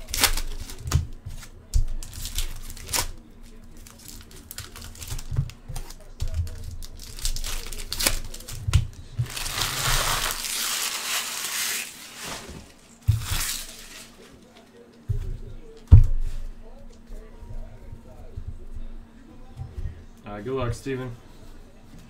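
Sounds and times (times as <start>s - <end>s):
foil wrappers crinkling and tearing: 0.0s - 14.7s.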